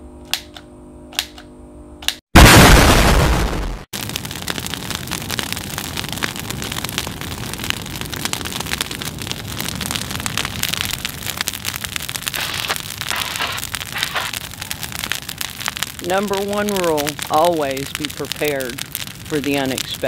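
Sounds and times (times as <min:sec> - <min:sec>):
brush fire crackling: 0:02.4 - 0:20.0.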